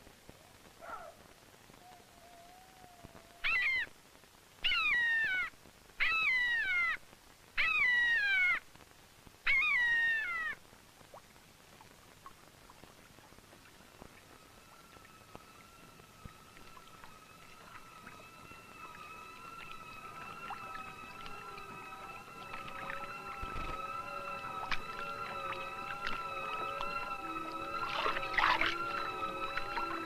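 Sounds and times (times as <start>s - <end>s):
bird of prey crying: 1.8s - 3.9s, 4.6s - 7.0s, 7.6s - 8.6s, 9.4s - 10.6s.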